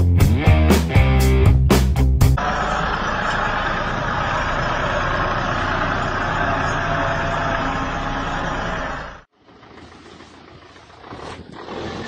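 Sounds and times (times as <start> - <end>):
tractor engine droning under load: 2.4 - 12.0.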